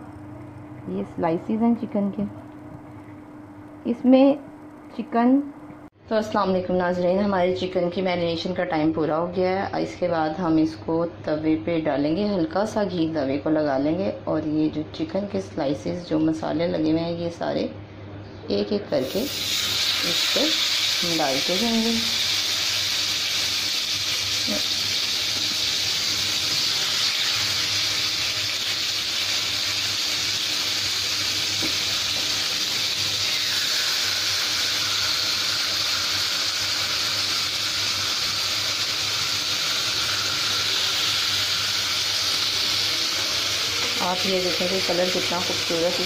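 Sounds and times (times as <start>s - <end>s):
chicken sizzling in oil: 19.0s - 46.0s.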